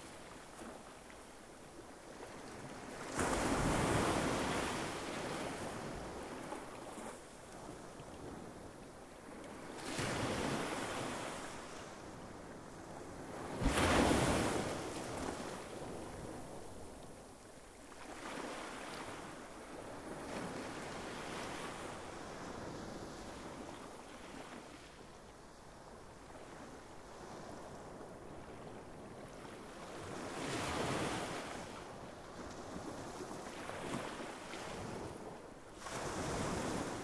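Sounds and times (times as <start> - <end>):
small sea waves breaking: 13.5 - 16.6, 29.8 - 37.0.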